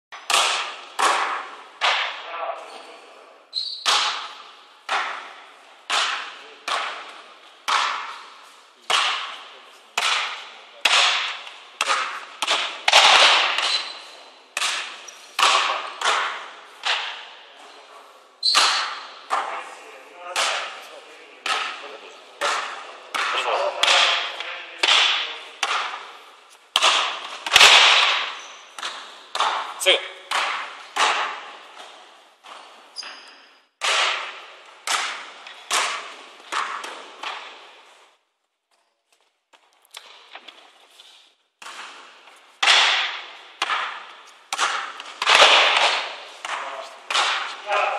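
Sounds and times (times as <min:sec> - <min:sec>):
shoe squeak on floor: 0:03.5 - 0:03.9, 0:13.6 - 0:14.3, 0:17.6 - 0:19.1, 0:28.3 - 0:28.7, 0:32.9 - 0:33.7.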